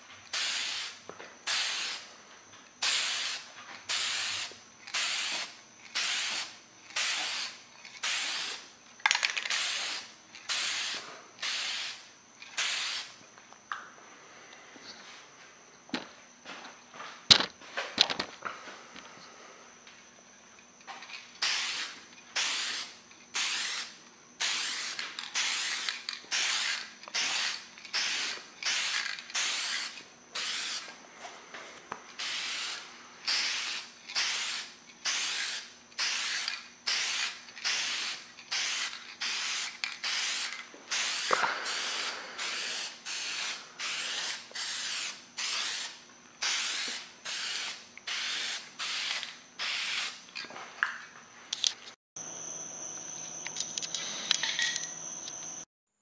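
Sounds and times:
spray paint can hissing: 0.3s - 2.1s, 2.8s - 13.2s, 21.4s - 30.9s, 32.2s - 50.2s.

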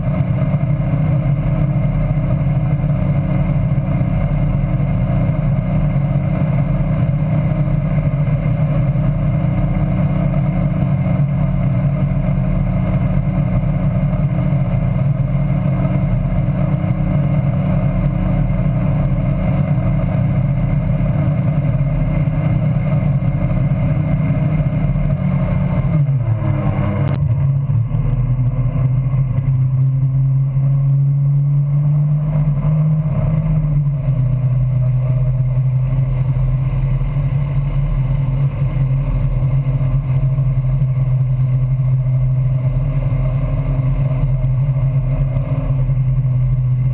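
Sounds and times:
boat engine running: 0.0s - 46.9s
wind: 0.0s - 46.9s.

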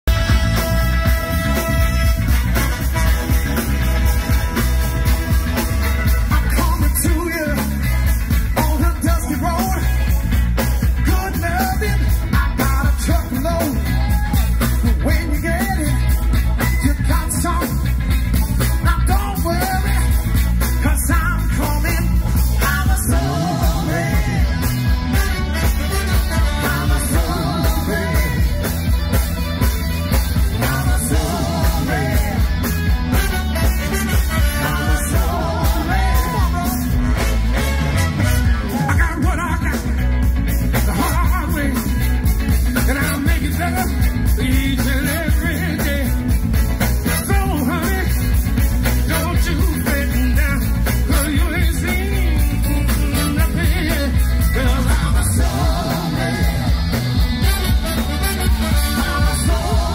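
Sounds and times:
heavy bass line: 0.0s - 59.9s
live rock band playing: 0.0s - 59.9s
saxophone horn section: 0.1s - 7.0s, 23.1s - 39.3s, 53.0s - 59.9s
person singing: 18.8s - 25.2s, 26.1s - 29.0s, 30.4s - 32.8s, 33.4s - 37.3s, 58.0s - 59.9s.

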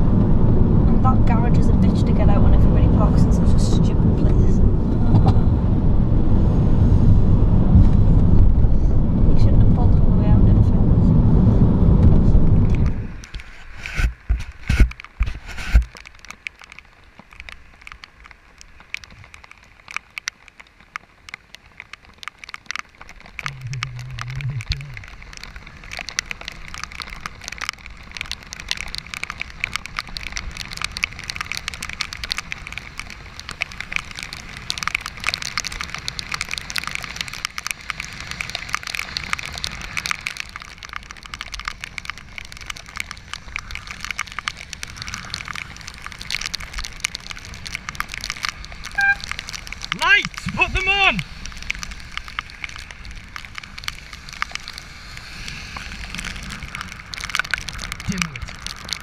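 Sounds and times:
raindrops clicking on camera housing: 11.8s - 59.0s
brief low hum: 23.5s - 25.0s
tyres hissing on wet road: 23.5s - 59.0s.

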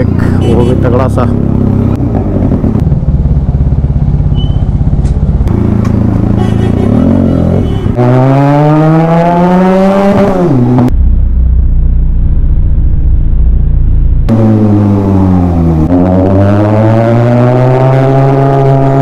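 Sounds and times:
motorcycle engine revving: 0.0s - 19.0s.

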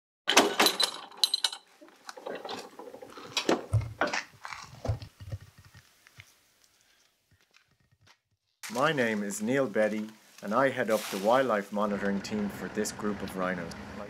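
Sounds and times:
clattering knocks and rattles: 0.3s - 5.9s.

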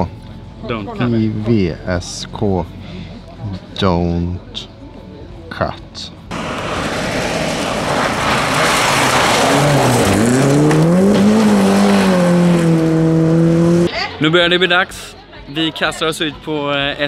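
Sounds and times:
tyres spraying gravel: 6.3s - 13.8s
rally car engine revving: 6.3s - 13.9s.

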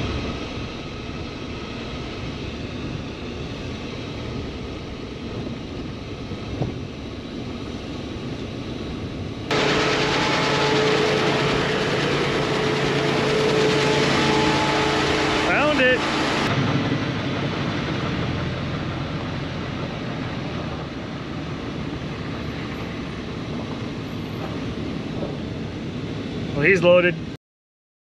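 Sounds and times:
constant hum: 0.0s - 26.8s
engine running outdoors: 0.0s - 26.9s
engine and road noise in cab: 2.2s - 9.8s, 13.8s - 26.3s.

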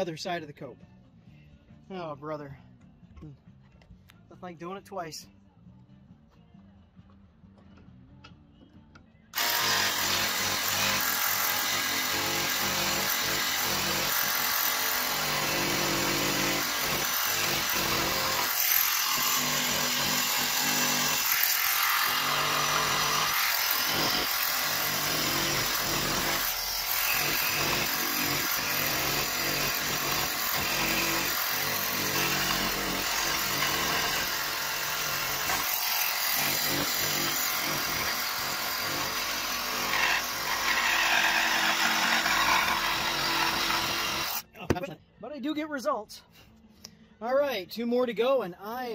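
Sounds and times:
jigsaw sawing wood: 9.4s - 44.5s.

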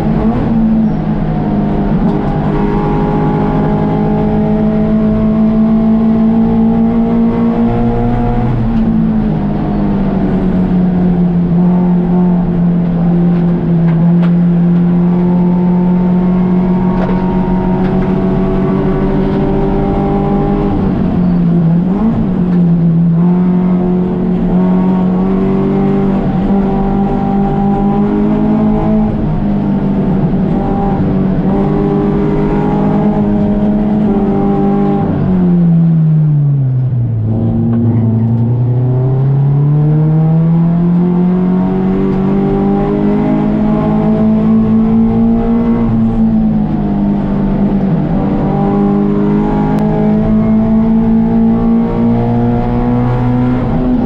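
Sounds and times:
race car engine revving: 0.0s - 54.0s.

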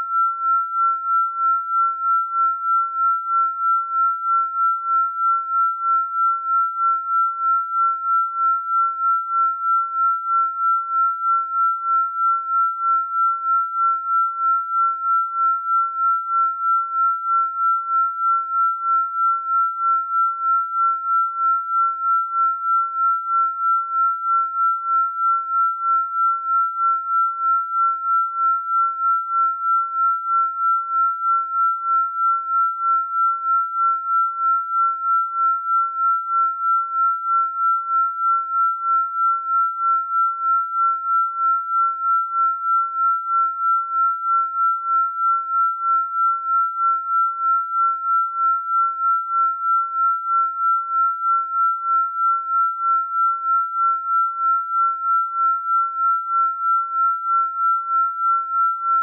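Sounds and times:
pulsing electronic sine tone: 0.0s - 59.0s.

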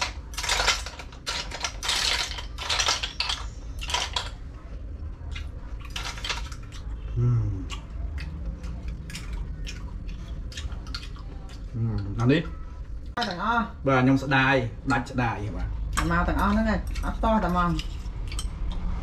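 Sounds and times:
snail shells clattering in metal bowl: 0.0s - 4.4s, 5.8s - 6.9s.

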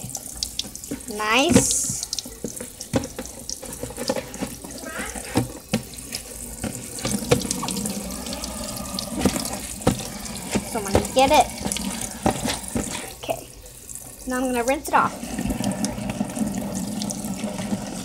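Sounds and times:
tap running into sink: 0.0s - 13.2s
sponge scrubbing plastic tray: 0.6s - 13.4s
tray knocking against sink: 9.1s - 13.0s.

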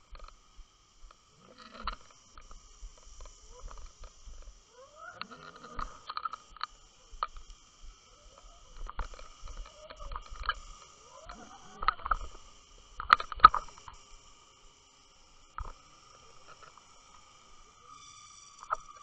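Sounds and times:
high underwater whine: 5.2s - 19.0s
underwater knocks and clicks: 11.7s - 12.4s, 13.0s - 14.0s.

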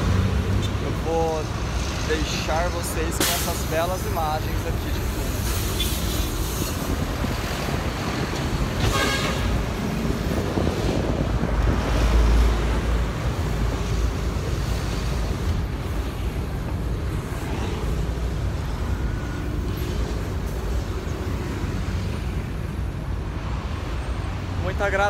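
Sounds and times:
city street traffic: 0.0s - 25.0s
wind buffeting microphone: 4.6s - 18.7s.

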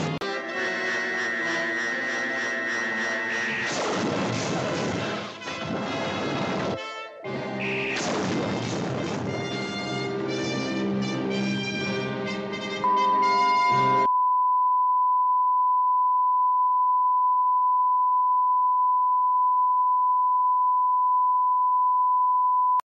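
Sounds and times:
music with held notes: 0.0s - 3.7s, 5.3s - 8.0s, 9.3s - 14.1s
steady single-pitch test tone: 1.2s - 3.7s, 12.8s - 22.8s.

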